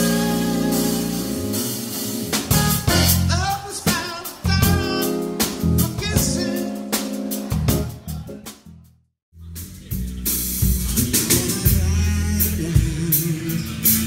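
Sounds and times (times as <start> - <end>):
drum and cymbal hits: 0.0 - 8.7, 9.6 - 14.0
piano: 0.0 - 8.8
bass guitar: 0.0 - 14.0.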